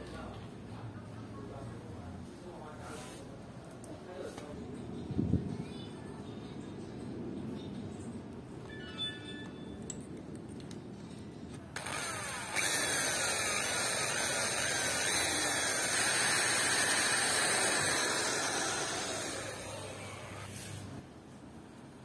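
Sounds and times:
electric drill boring into wood: 11.8s - 20.5s.

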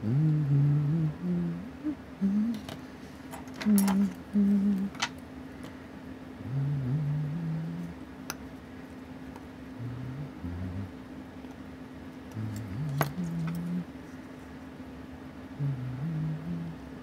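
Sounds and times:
man humming low notes: 0.0s - 2.8s, 3.6s - 5.1s, 6.4s - 8.0s, 9.7s - 11.0s, 12.3s - 14.2s, 15.5s - 17.0s
steady low electrical hum: 0.0s - 17.0s.

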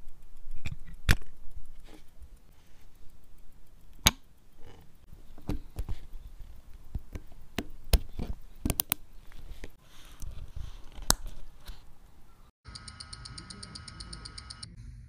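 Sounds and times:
small metal clicks and taps: 0.0s - 9.8s.

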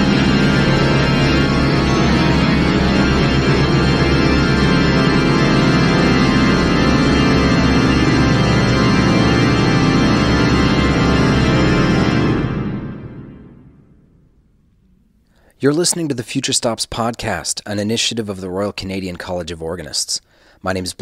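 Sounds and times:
pulsing bass: 0.0s - 14.2s
pipe organ chord cluster: 0.0s - 14.9s.

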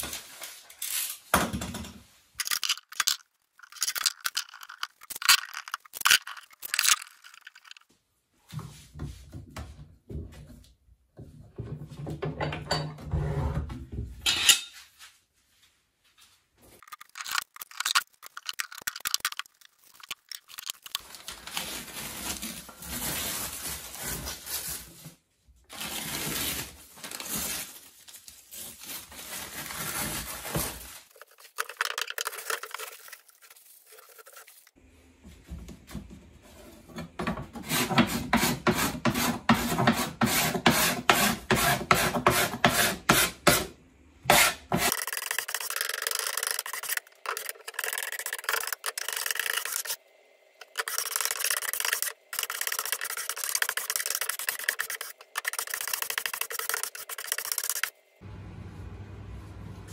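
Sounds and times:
newspaper tearing and rustling: 16.8s - 25.1s, 25.7s - 34.7s.

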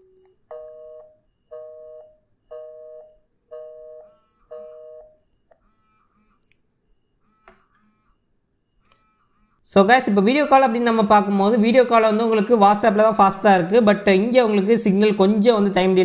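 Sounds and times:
phone call ringing tones: 0.0s - 6.4s.

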